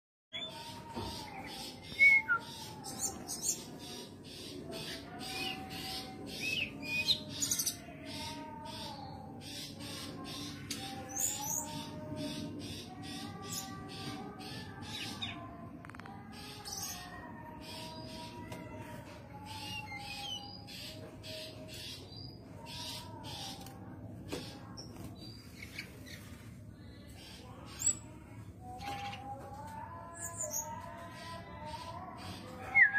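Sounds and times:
bird whistling and chirping: 1.8s - 3.1s.

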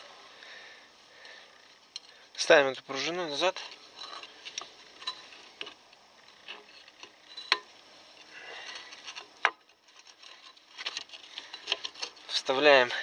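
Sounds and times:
metal clicks and light scraping: 3.5s - 12.4s.

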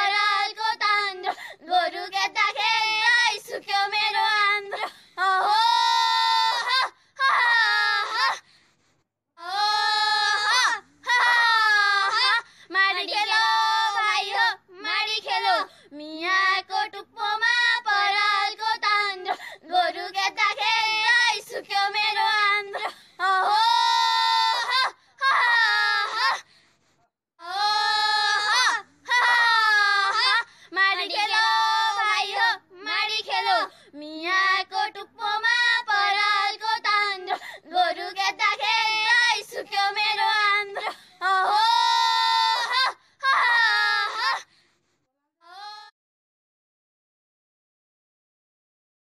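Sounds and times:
woman singing unaccompanied: 0.0s - 6.6s, 12.0s - 24.0s, 30.1s - 42.0s.

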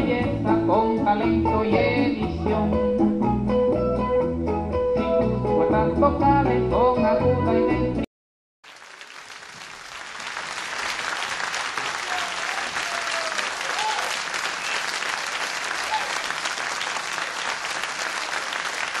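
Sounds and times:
crowd applauding: 8.6s - 19.0s
short calls from crowd: 11.6s - 19.0s.

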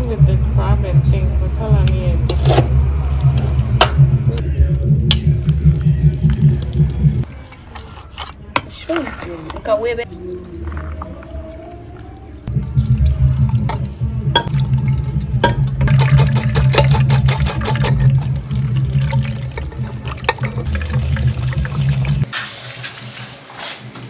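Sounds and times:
running water: 8.9s - 22.3s.

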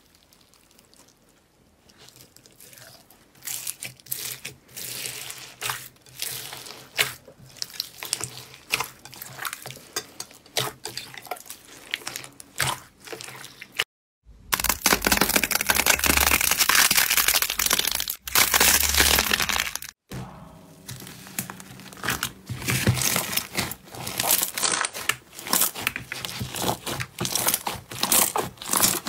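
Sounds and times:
wet slime squelching and popping: 0.0s - 13.8s, 22.0s - 29.0s.

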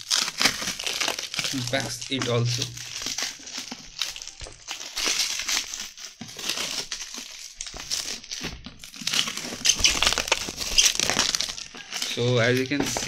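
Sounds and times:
plastic wrap crinkling: 0.0s - 13.0s.

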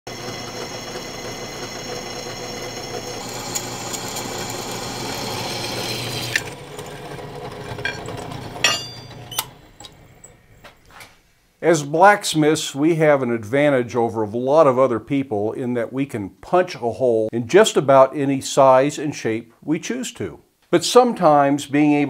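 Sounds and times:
drill press motor whine: 0.1s - 10.7s
metallic clank: 7.6s - 10.4s.

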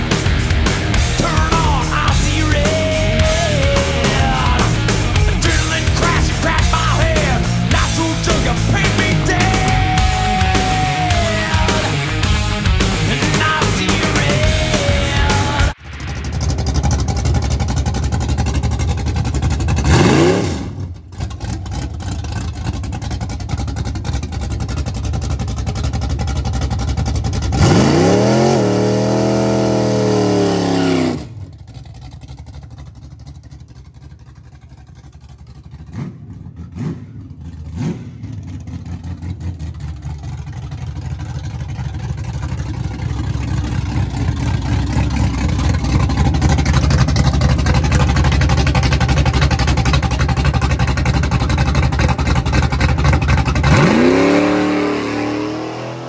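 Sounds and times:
engine revving hard: 0.0s - 21.6s, 27.4s - 31.5s, 35.9s - 39.0s, 51.3s - 56.0s
car engine idling loudly: 0.0s - 56.0s.

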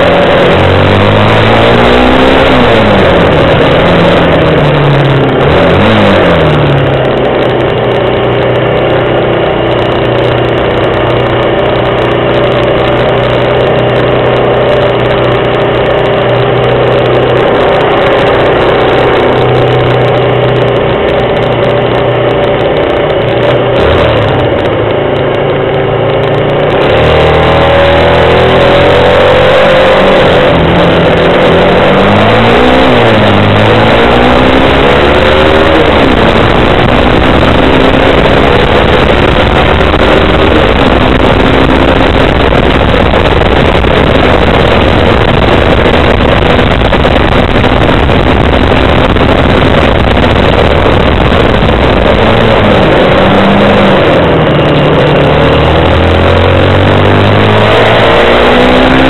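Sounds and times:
motorcycle engine accelerating: 0.0s - 59.0s
wind and road noise: 0.0s - 59.0s.

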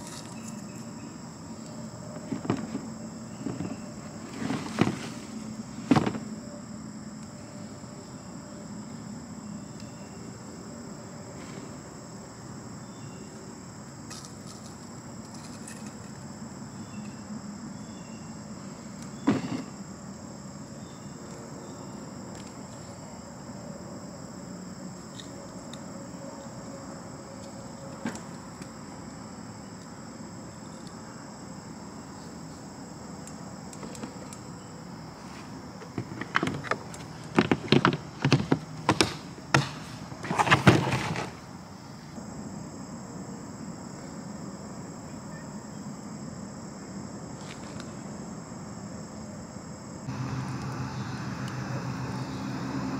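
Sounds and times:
night insects chirring: 0.0s - 52.9s
distant traffic hum: 50.0s - 52.9s.

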